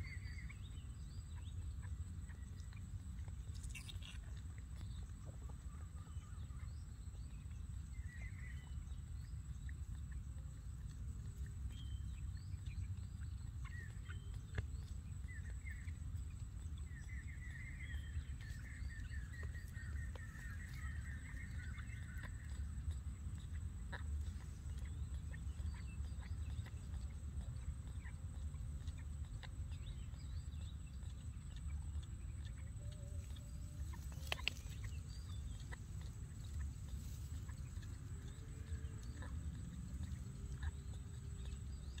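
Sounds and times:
baby monkey suckling bottle: 0:02.2 - 0:05.8, 0:18.2 - 0:42.0.

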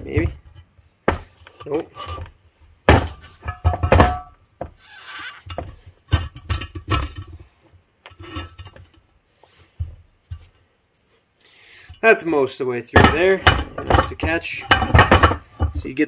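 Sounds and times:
metal clinks and knocks: 0:02.9 - 0:04.8, 0:05.4 - 0:09.1, 0:13.0 - 0:15.9.

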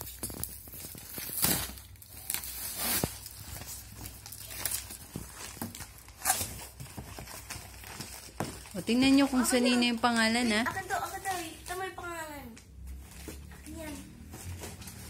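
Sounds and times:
packing tape ripping: 0:00.0 - 0:08.4.

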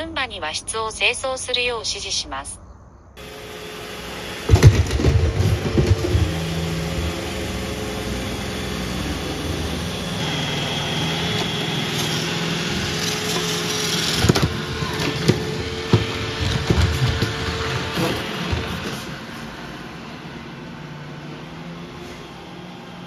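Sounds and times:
high-pitched whine: 0:02.5 - 0:20.8
robot vacuum humming: 0:03.2 - 0:23.0.

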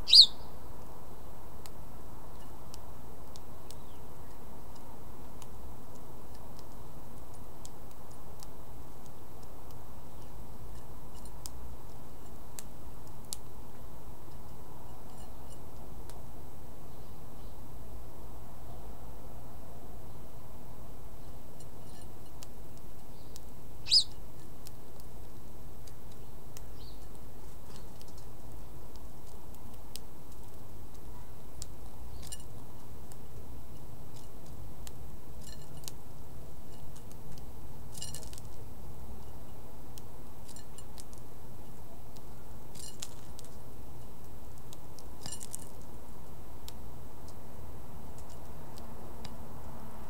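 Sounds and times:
songbird chirping: 0:00.0 - 0:00.7, 0:03.6 - 0:04.8, 0:16.7 - 0:17.8, 0:23.0 - 0:24.2, 0:26.1 - 0:28.4, 0:30.9 - 0:34.0
low background noise: 0:00.0 - 0:50.0
bird pecking seed clicks: 0:02.7 - 0:10.3, 0:11.2 - 0:13.5, 0:21.6 - 0:36.1, 0:39.9 - 0:43.6, 0:44.2 - 0:46.0, 0:48.0 - 0:49.4.

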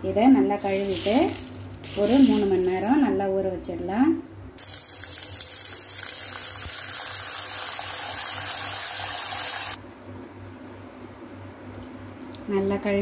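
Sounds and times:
water pouring into a bowl: 0:04.6 - 0:09.8.

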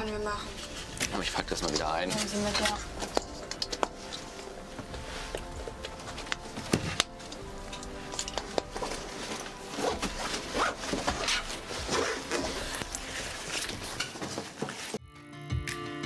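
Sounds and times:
clothes rustling: 0:00.0 - 0:15.0
footsteps on wooden floor: 0:02.1 - 0:15.0
scraping and rubbing: 0:07.8 - 0:15.0.

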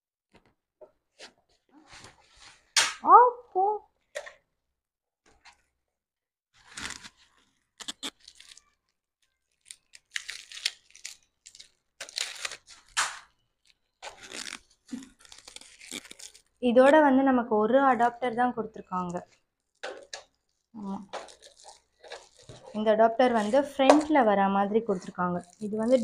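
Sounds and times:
packaging rustling and crinkling: 0:06.6 - 0:16.6, 0:19.2 - 0:24.2, 0:24.8 - 0:26.0.

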